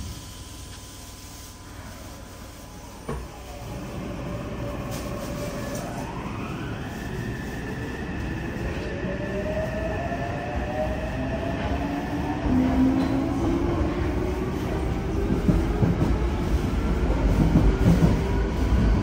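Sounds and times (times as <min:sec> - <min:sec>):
train running gear rumble: 0:12.4 - 0:19.0.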